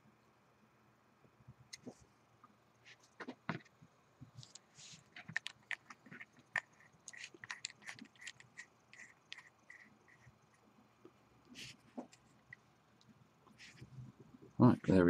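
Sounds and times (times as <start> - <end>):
small metal clicks and scrapes: 4.4 - 10.3.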